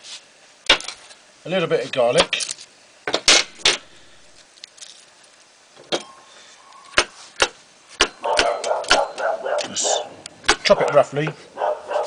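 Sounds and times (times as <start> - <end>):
dogs barking: 8.2 - 12.0.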